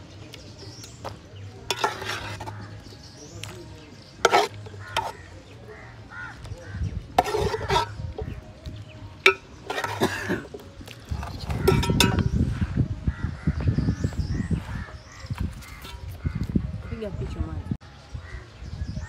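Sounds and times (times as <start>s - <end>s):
utensils clinking against a pot: 1.6s - 2.9s, 4.1s - 5.3s, 7.1s - 8.4s, 9.2s - 12.4s
utensils scraping a pot: 1.6s - 3.0s, 4.1s - 5.3s, 7.1s - 8.5s, 9.2s - 12.4s.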